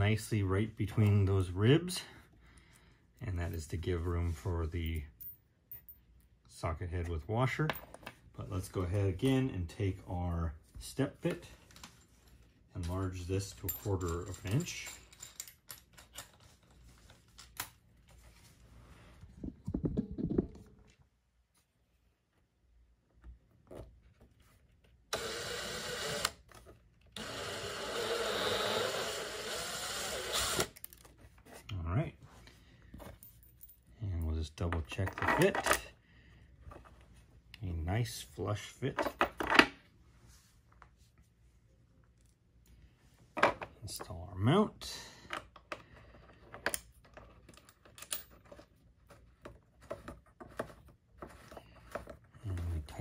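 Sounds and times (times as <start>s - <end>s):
power drill drilling plastic: 25.1s - 26.4s, 27.2s - 30.8s.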